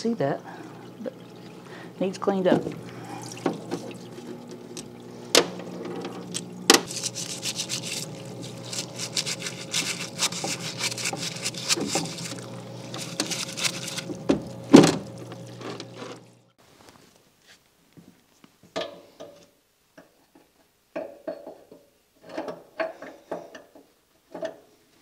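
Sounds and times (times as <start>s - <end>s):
pump humming: 0.0s - 16.6s
solvent splashing: 0.4s - 16.5s
brush scrubbing metal gear: 6.1s - 14.2s.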